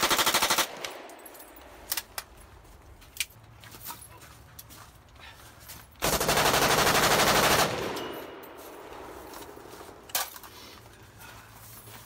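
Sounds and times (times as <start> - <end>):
rifle full-auto burst: 0.0 - 1.0, 6.0 - 8.1.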